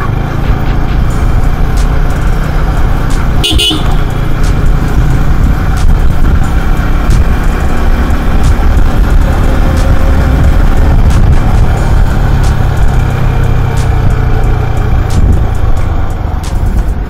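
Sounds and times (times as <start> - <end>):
road traffic rumble: 0.0 - 17.0
vehicle horn toot: 3.4 - 4.1.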